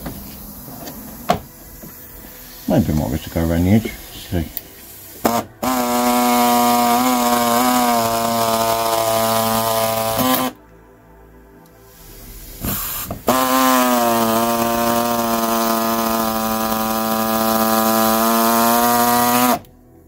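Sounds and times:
electric saw cutting sheet steel: 0:05.2 - 0:10.6, 0:12.6 - 0:19.7.

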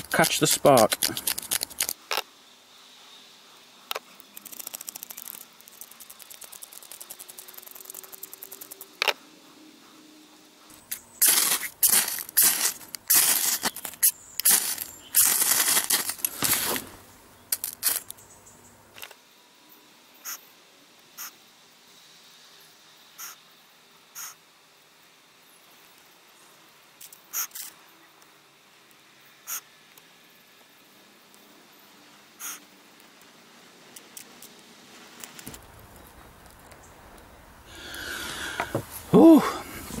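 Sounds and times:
fire steel scraped with striker: 0:00.0 - 0:01.9, 0:11.2 - 0:16.8
tinder crumbled between fingers: 0:00.0 - 0:02.0, 0:04.2 - 0:09.0, 0:10.9 - 0:16.9, 0:17.5 - 0:18.2.

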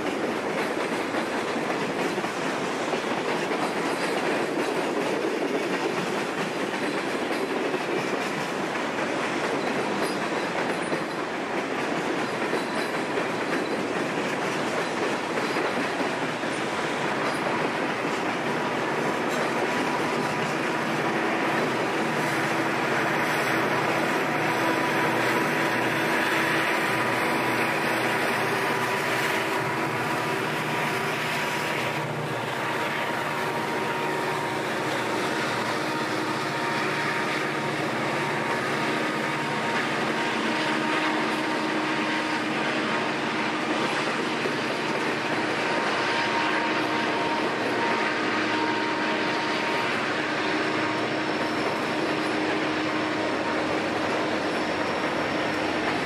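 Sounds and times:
train wheels on rail: 0:00.0 - 0:56.0.

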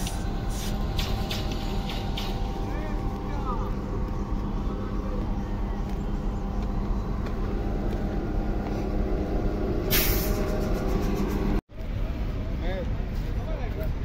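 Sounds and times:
loud hiss: 0:00.0 - 0:02.5, 0:09.9 - 0:10.5
diesel engine running: 0:00.0 - 0:13.3.

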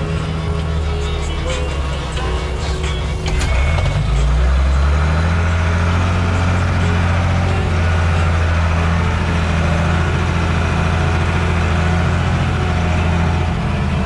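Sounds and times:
tractor diesel engine drone: 0:00.0 - 0:14.0.

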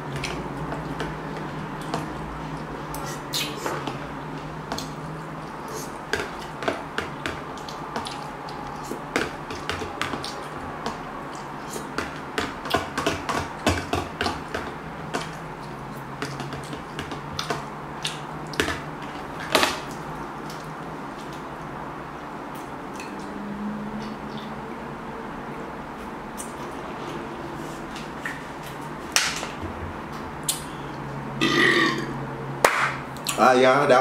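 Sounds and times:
chewing and slurping: 0:07.4 - 0:12.0.

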